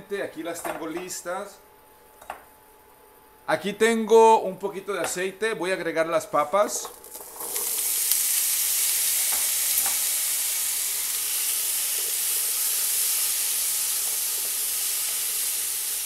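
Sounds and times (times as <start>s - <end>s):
potatoes sizzling in oil: 6.8s - 16.0s.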